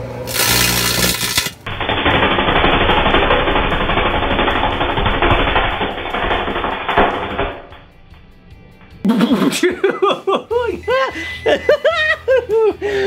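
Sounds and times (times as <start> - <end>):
chip bag crackling in microwave: 0.1 - 7.4.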